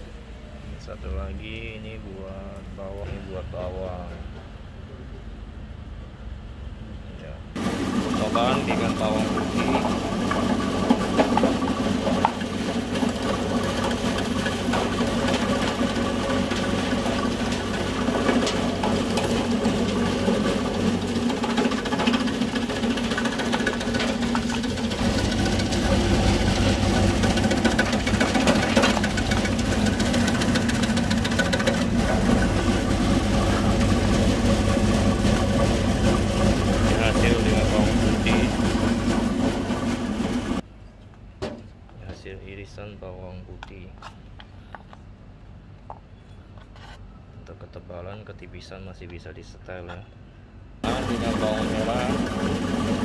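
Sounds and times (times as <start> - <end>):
slicing machine humming: 7.6 - 40.6, 50.8 - 53.0.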